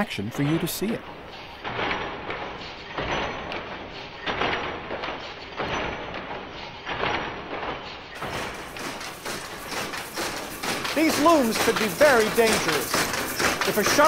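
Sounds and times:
power loom clattering slowed down: 0:00.0 - 0:14.0.

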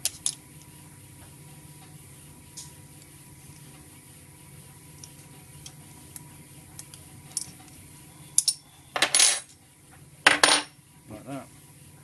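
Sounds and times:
metal parts clattering on workbench: 0:08.4 - 0:09.5, 0:10.3 - 0:10.7.

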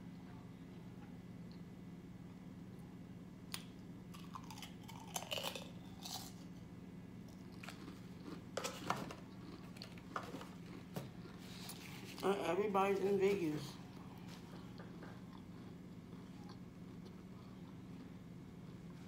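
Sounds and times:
low steady hum: 0:00.0 - 0:19.0
crisps crunching: 0:03.5 - 0:06.6, 0:07.2 - 0:18.8.

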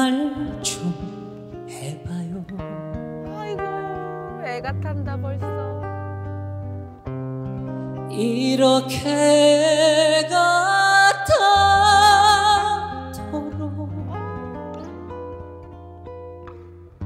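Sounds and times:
man singing ballad with vibrato: 0:00.0 - 0:04.1, 0:08.1 - 0:14.6.

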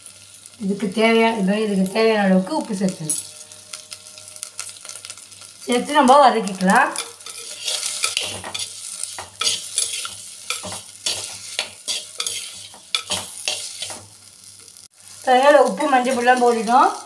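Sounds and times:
vegetables sizzling in oil: 0:00.0 - 0:17.0
ladle scraping and knocking pot: 0:07.0 - 0:14.0.

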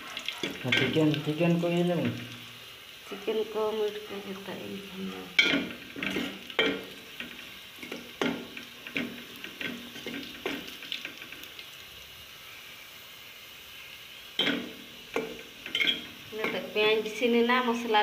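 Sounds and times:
frying sizzle: 0:00.0 - 0:18.0
metal spoon scraping a pot: 0:05.1 - 0:06.8, 0:15.6 - 0:16.1.

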